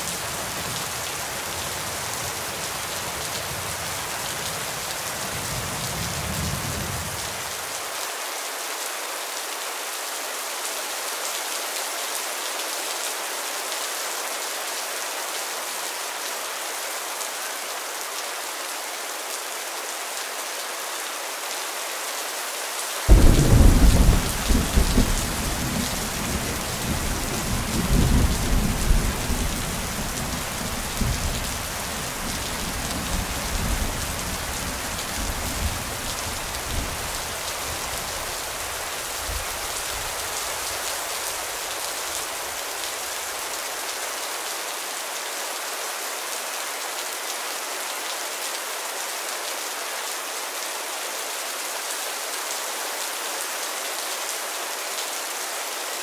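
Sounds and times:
rain on leaves: 0.0 - 56.0
thunder rumble: 23.1 - 26.9.

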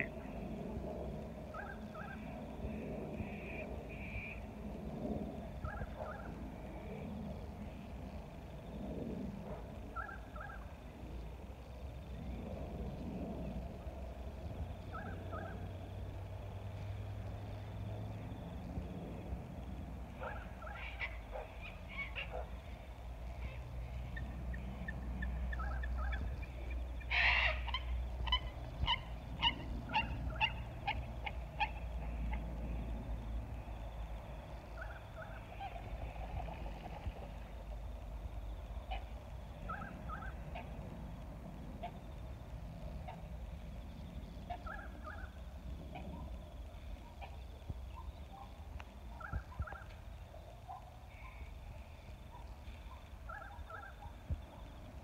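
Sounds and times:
low background rumble: 0.0 - 55.0
waterbirds calling: 23.4 - 32.4.

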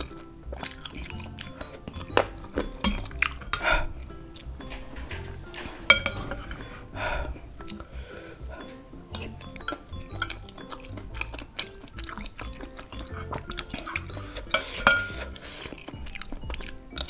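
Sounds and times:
cutlery clinking on ceramic bowl: 0.0 - 6.8, 8.6 - 17.0
background music: 0.0 - 17.0.

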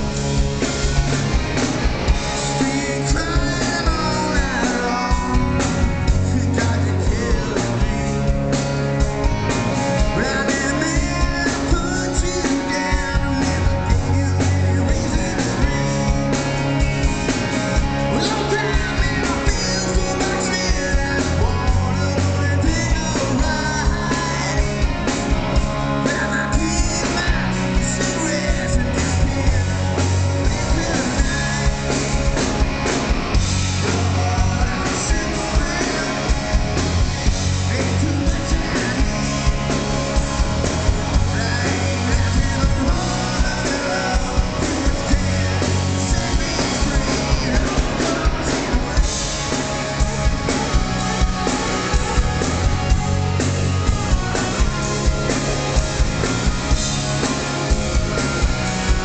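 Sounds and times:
drum kit beat: 0.0 - 59.0
live rock band playing: 0.0 - 59.0
man singing: 2.3 - 56.7.

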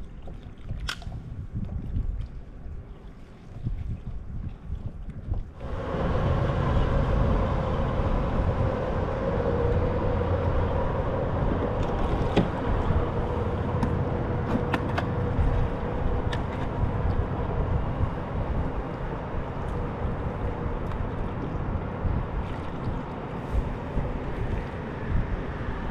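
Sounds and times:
low rumble with droning hum: 5.3 - 25.9.

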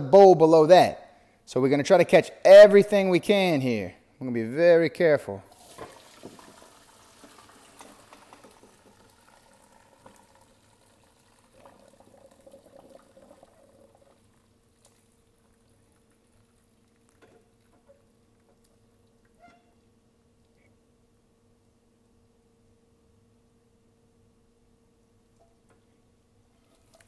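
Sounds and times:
liquid trickling through strainer: 5.5 - 19.6, 26.6 - 27.0.

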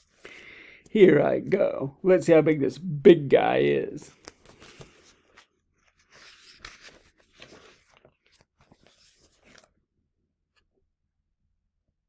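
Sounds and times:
paper pages rustling and turning: 4.1 - 9.8.

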